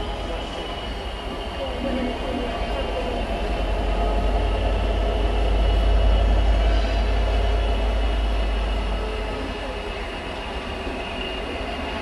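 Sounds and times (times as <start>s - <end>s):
diesel locomotive engine rumble: 0.0s - 12.0s.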